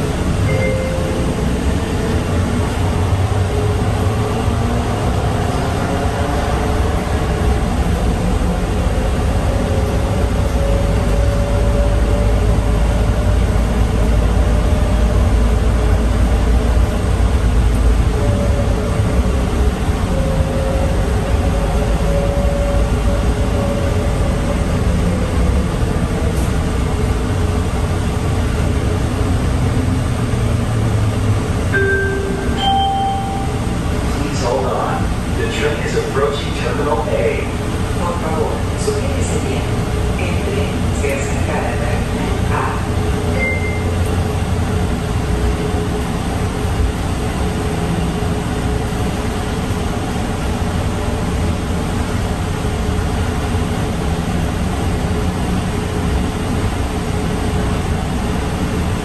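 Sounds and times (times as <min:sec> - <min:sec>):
two-note chime: 0:00.5 - 0:01.4, 0:31.8 - 0:33.7, 0:43.4 - 0:43.9.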